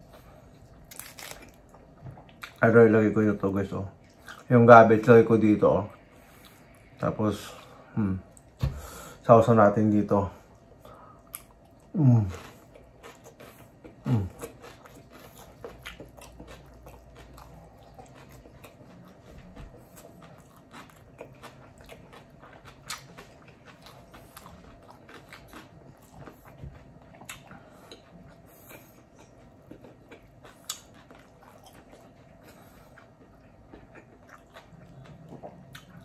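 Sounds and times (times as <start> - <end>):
chewing food: 0.0 - 2.8, 10.4 - 36.0.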